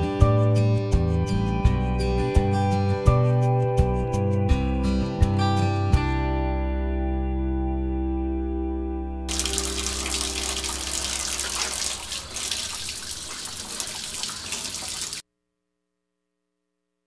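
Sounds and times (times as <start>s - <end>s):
tap water splashing into basin: 9.3s - 15.2s.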